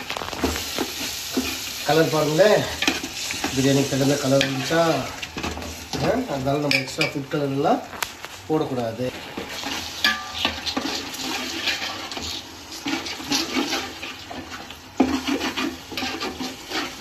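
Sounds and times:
sauce sizzling and bubbling: 0.0s - 17.0s
metal ladle scraping a pot: 9.4s - 17.0s.

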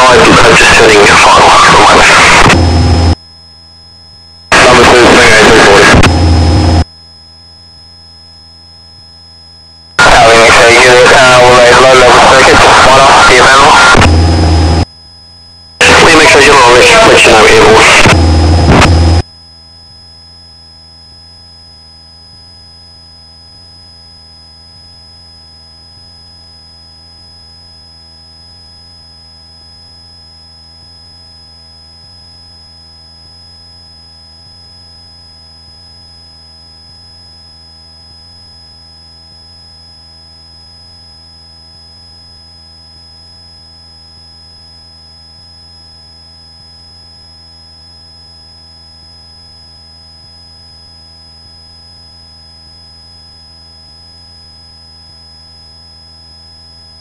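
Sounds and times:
electrical hum: 0.0s - 3.2s, 4.4s - 6.9s, 7.7s - 15.0s, 15.8s - 19.2s
high-pitched whine: 0.0s - 27.6s.

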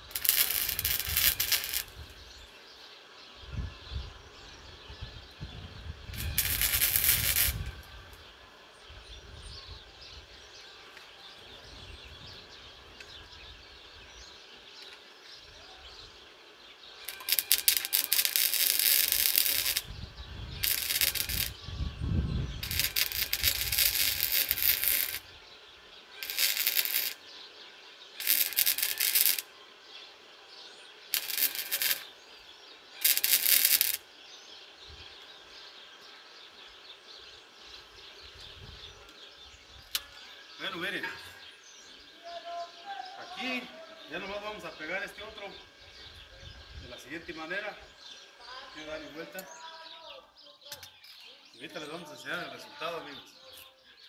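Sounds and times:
welder arc crackling: 0.0s - 2.2s, 5.9s - 8.2s, 17.0s - 25.4s, 26.1s - 27.3s, 28.1s - 29.5s, 31.1s - 32.2s, 33.0s - 34.1s.

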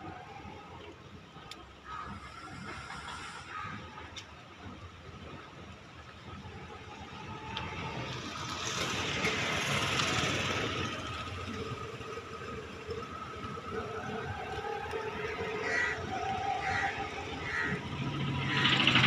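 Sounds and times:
faint steady hum: 0.0s - 18.8s
motor vehicle passing: 7.2s - 19.0s.

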